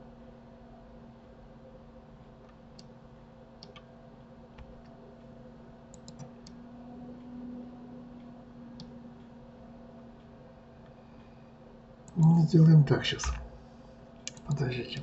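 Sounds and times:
low electrical hum: 0.0s - 15.0s
mouse and keyboard clicks: 14.3s - 15.0s.

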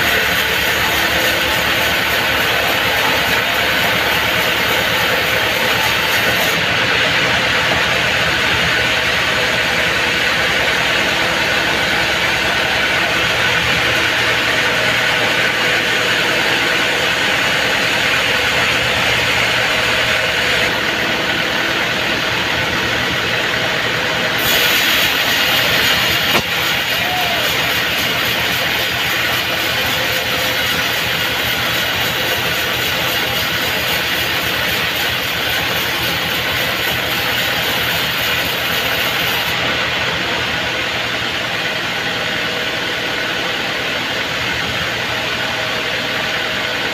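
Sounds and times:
saw blade cutting log: 0.0s - 20.8s, 24.3s - 39.7s
band saw machine running: 0.0s - 46.9s.

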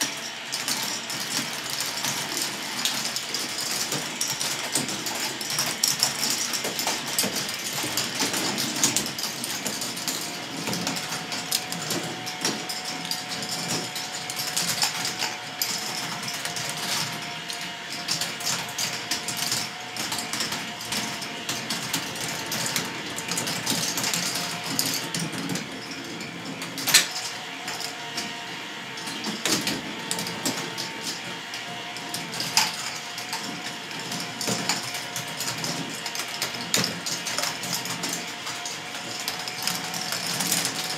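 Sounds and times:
faint motor whine: 0.0s - 40.9s
plastic balls rattling on tracks: 0.0s - 40.9s.

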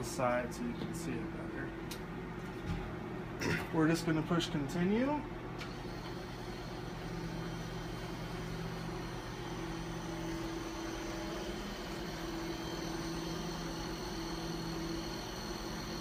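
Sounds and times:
steady machine hum: 0.0s - 16.0s
faint high whine: 4.2s - 16.0s.

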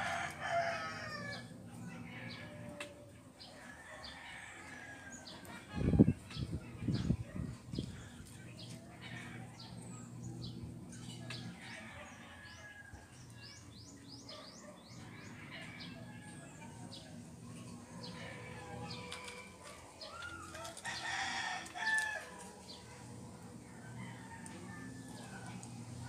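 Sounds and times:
low steady hum: 0.0s - 26.0s
small birds chirping: 5.0s - 21.2s.

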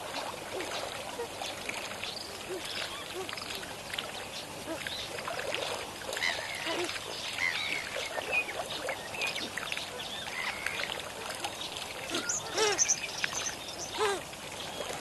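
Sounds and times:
chorus of bird calls: 6.2s - 14.2s.

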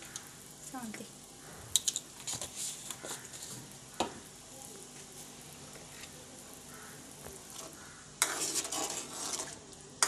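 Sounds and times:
water simmering: 0.0s - 10.0s
ladle scraping stir in pot: 7.5s - 9.7s.

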